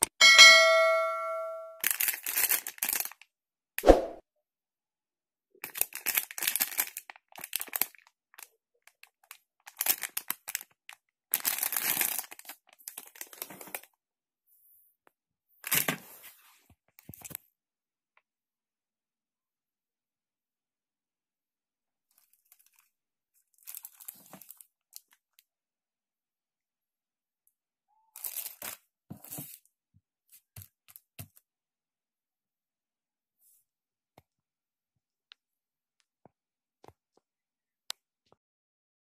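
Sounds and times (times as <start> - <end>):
plastic packaging crinkling: 1.8 - 3.2, 5.6 - 13.8.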